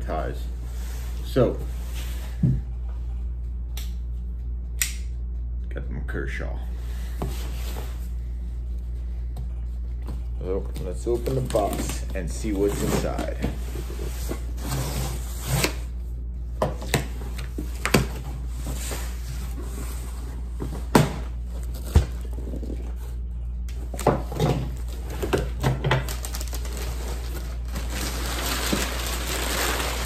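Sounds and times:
packing paper rustling: 10.6 - 15.5, 24.7 - 30.0.

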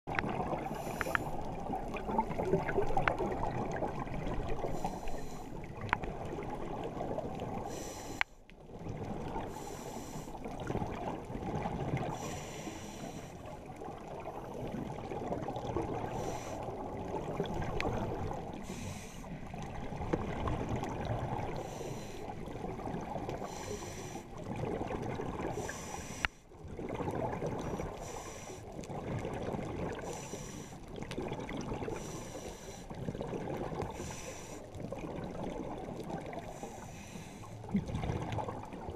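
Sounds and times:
exhaled bubbles gurgling: 0.1 - 38.9
scuba regulator inhale hiss: 0.7 - 1.4, 4.7 - 5.6, 7.6 - 8.4, 9.5 - 10.4, 12.1 - 13.4, 16.0 - 16.7, 18.5 - 19.4, 21.6 - 22.4, 23.4 - 24.3, 25.6 - 26.4, 27.8 - 28.7, 30.0 - 30.8, 31.9 - 32.9, 33.9 - 34.7, 36.4 - 37.6.

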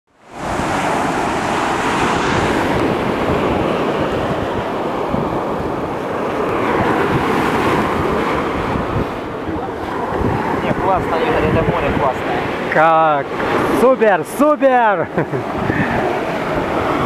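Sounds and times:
waves breaking on shore: 0.1 - 17.0
wind buffeting microphone: 0.3 - 17.0.

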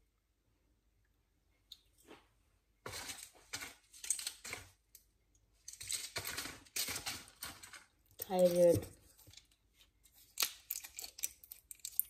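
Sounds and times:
small items clicking and rustling: 2.9 - 12.0.

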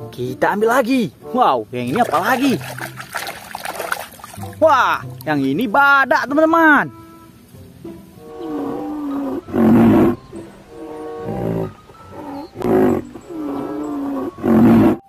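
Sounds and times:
low moaning calls: 8.2 - 15.0
deep animal roars: 8.3 - 15.0.

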